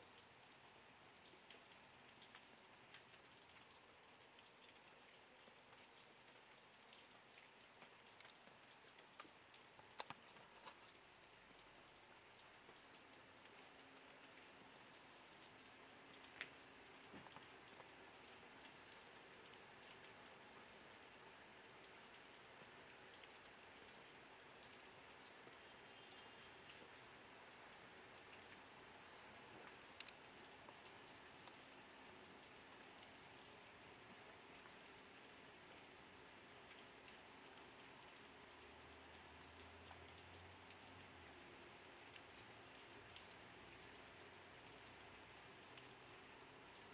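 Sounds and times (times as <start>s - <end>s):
light rain hiss: 0.0s - 46.9s
scattered drips: 0.0s - 46.9s
small sharp ticks: 1.2s - 11.8s.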